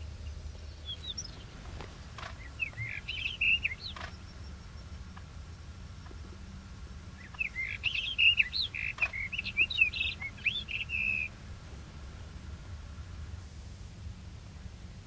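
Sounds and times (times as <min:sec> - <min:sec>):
bird singing whistled song: 0:00.2 - 0:01.6, 0:02.3 - 0:05.0, 0:07.1 - 0:11.4.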